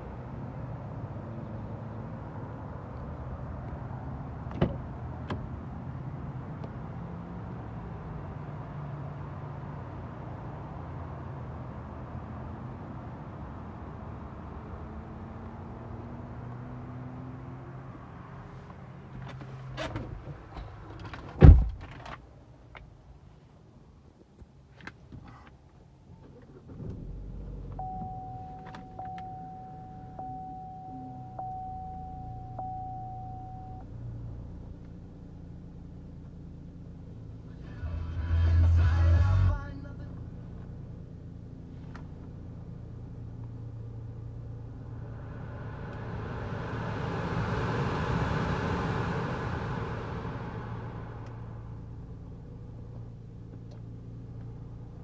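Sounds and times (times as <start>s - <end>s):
car engine starting and idling: 24.5s - 55.0s
steady electronic tone: 27.8s - 33.8s
blower fan air rushing: 44.8s - 52.2s.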